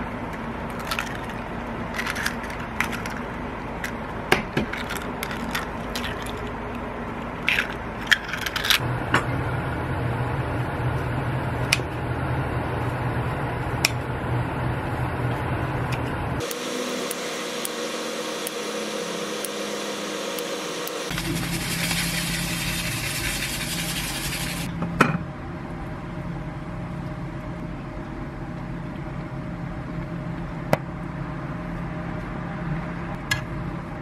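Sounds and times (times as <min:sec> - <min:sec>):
eggs cracking on a bowl: 0:00.7 - 0:04.0, 0:04.6 - 0:06.5.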